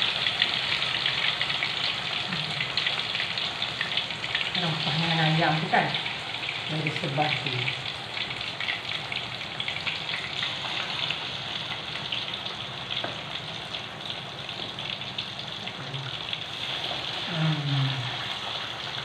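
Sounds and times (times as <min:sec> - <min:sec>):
chicken deep-frying in oil: 0:00.0 - 0:19.0
low voice: 0:17.3 - 0:18.2.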